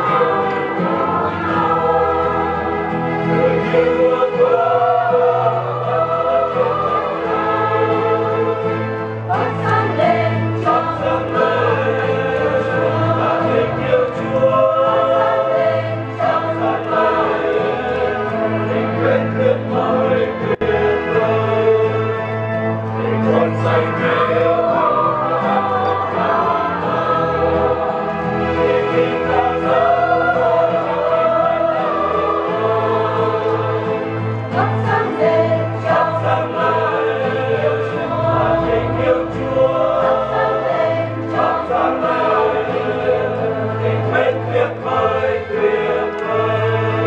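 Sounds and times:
choir singing a hymn: 0.0 - 47.0.

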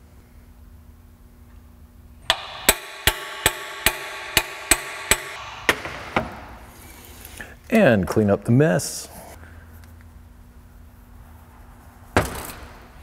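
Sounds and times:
hammer striking metal: 2.3 - 6.6.

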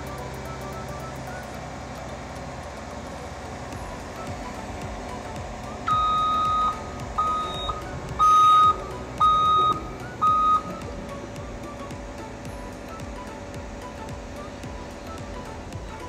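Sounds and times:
excavator running: 0.0 - 16.0
warning alarm beeping: 3.8 - 11.1.

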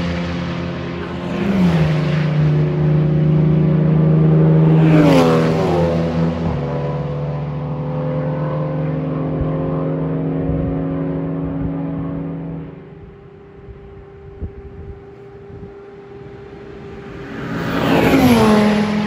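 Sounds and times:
car passing close by: 0.0 - 14.2, 14.9 - 19.0
race car engines droning: 0.0 - 19.0.

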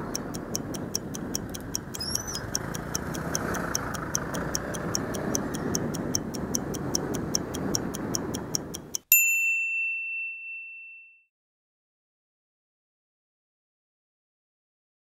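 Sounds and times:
city traffic noise: 0.0 - 9.1
clock ticking: 0.0 - 9.1
bell-like ding: 9.1 - 11.3.

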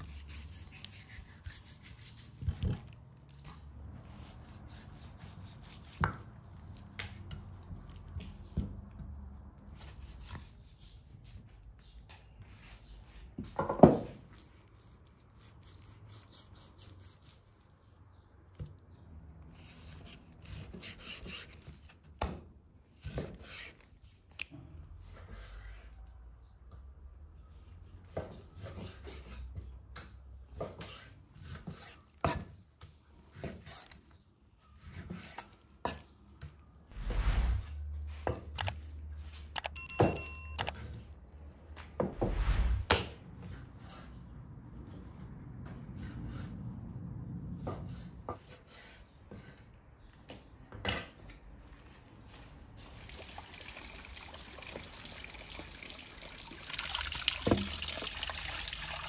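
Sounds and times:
short ringing tone: 39.6 - 40.8
running water splashing: 52.8 - 59.0.

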